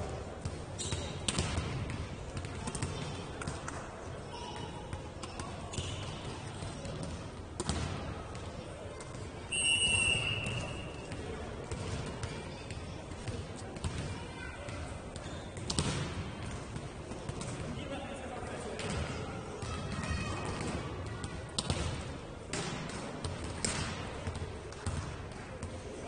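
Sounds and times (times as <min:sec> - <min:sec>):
basketball bouncing on floor: 0:23.6 - 0:25.1.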